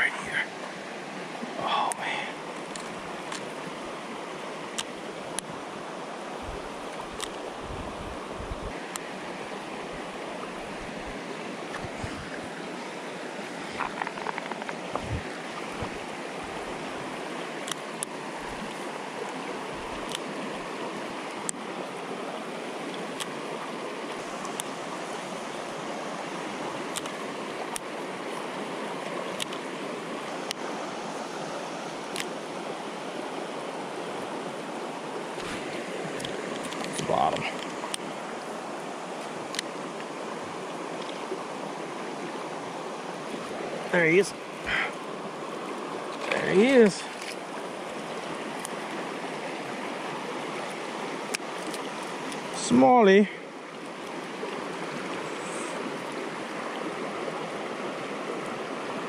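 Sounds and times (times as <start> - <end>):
river rushing over rocks: 0.0 - 59.0
faint clicks: 1.9 - 3.5, 13.8 - 15.0, 17.6 - 18.8, 24.1 - 24.7, 26.9 - 27.9, 29.3 - 29.6.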